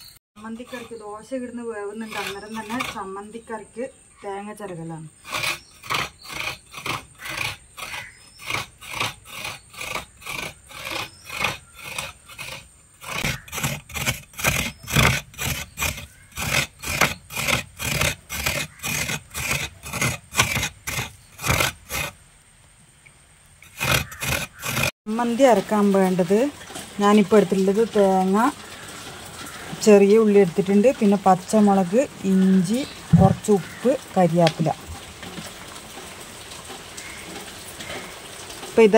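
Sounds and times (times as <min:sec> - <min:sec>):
coconut grating on metal blade: 0:00.0 - 0:22.2, 0:23.6 - 0:28.1.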